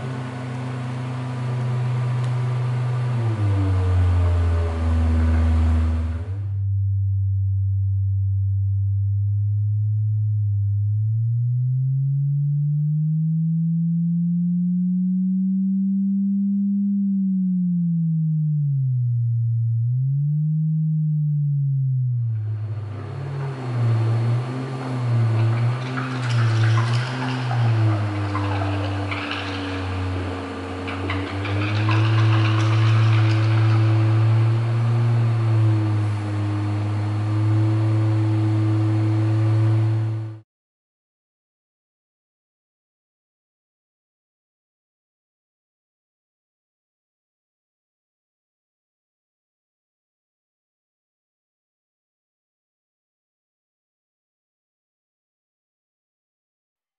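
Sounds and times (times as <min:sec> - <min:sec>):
low drone with hiss: 0:00.0 - 0:10.5, 0:14.2 - 0:40.4
low electronic sine tone: 0:00.0 - 0:40.4.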